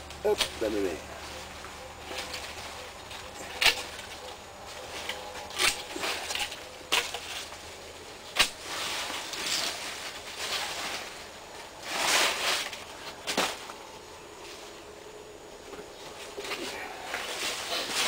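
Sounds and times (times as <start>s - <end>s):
secateurs snipping stems: 0.0s - 0.7s, 2.1s - 4.4s, 5.0s - 7.6s, 8.2s - 9.8s
leaves rustling: 0.0s - 18.0s.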